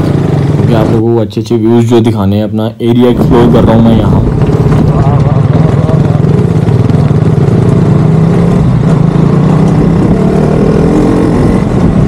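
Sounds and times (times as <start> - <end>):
motorcycle engine running: 0.0 - 2.2, 2.9 - 12.0.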